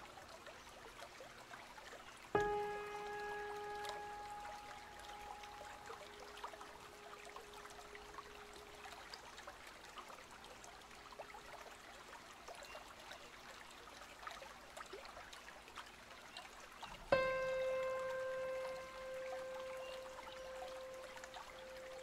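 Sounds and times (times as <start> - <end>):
water trickling and dripping: 0.0 - 22.0
held musical note: 2.4 - 7.7, 17.1 - 22.0.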